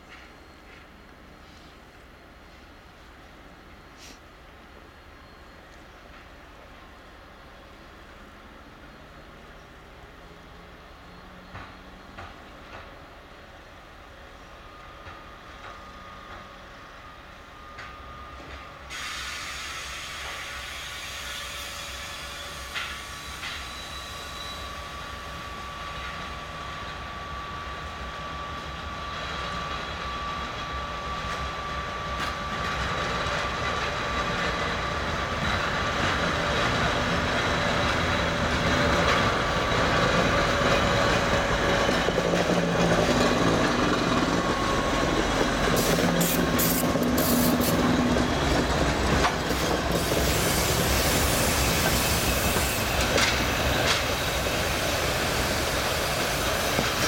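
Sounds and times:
diesel locomotive engine running: 24.9s - 57.0s.

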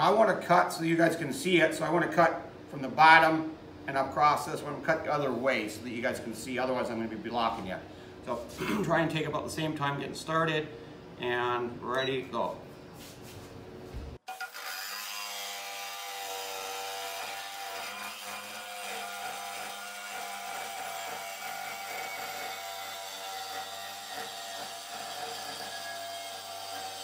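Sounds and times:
jigsaw cutting metal: 14.3s - 27.0s.

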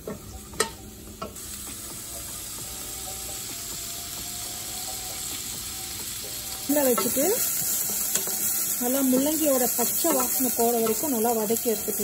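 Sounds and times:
food sizzling in oil: 0.0s - 12.0s
wooden spoon knocking on pan: 7.9s - 11.3s.

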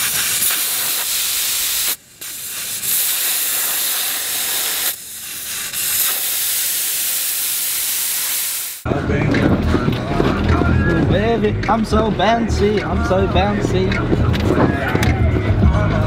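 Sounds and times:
air hissing out of tyre: 0.0s - 8.9s.

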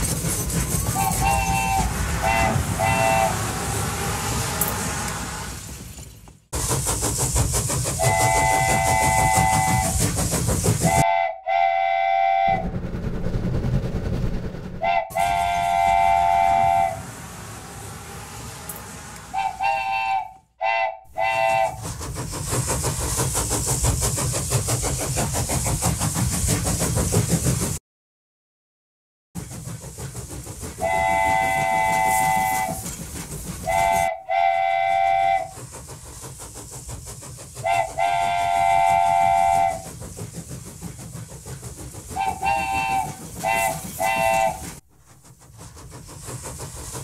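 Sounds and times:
toy train horn: 1.0s - 3.4s, 8.1s - 10.0s, 10.9s - 12.6s, 14.8s - 17.0s, 18.7s - 21.8s, 30.8s - 32.8s, 33.6s - 35.6s, 37.6s - 39.8s, 42.2s - 44.6s.

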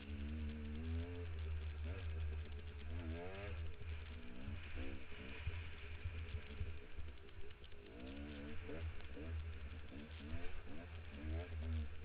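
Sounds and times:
dirt bike engine revving: 0.0s - 7.2s, 7.8s - 12.0s
steady low rumble: 0.0s - 12.0s.

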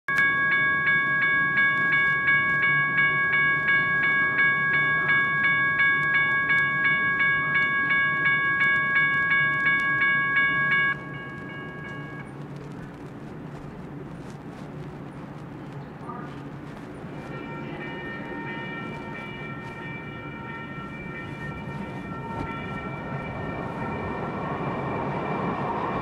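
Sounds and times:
railroad crossing bell ringing: 0.1s - 13.0s, 17.0s - 26.0s
low background rumble: 0.5s - 26.0s.

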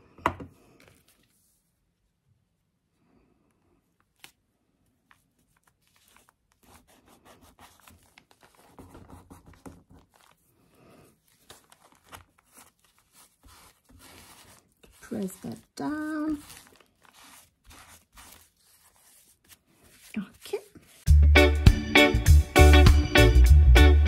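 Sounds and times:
paper rustling and rubbing: 4.0s - 21.1s.

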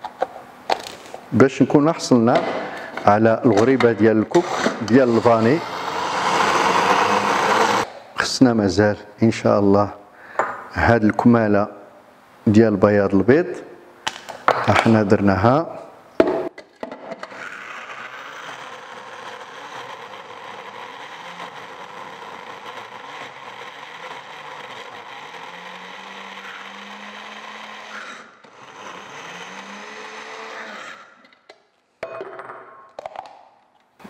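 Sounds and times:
electric chopper motor running: 5.0s - 7.9s, 17.4s - 31.1s.

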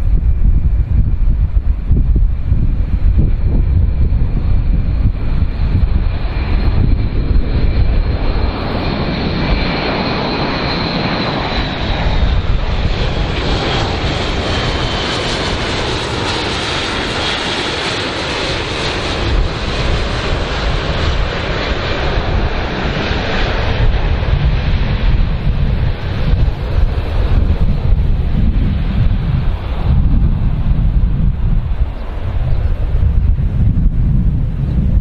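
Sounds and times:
turboprop aircraft flying past: 0.0s - 35.0s.

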